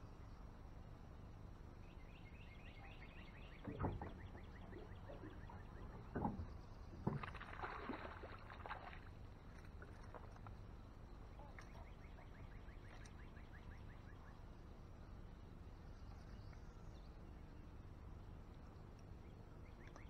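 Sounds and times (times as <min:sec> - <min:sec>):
fish splashing at water surface: 0:07.0 - 0:10.6.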